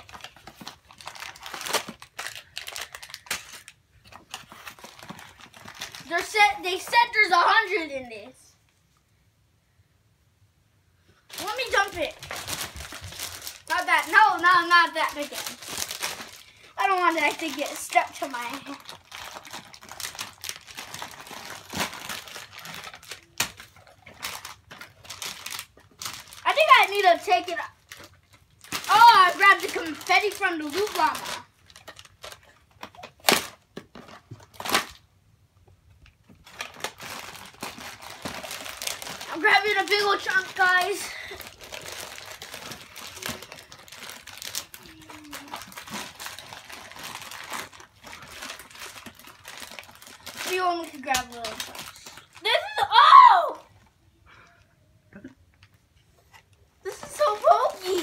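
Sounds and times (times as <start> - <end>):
paper and plastic crinkling: 0.0 - 8.4, 11.2 - 35.0, 36.0 - 53.1, 56.0 - 58.0.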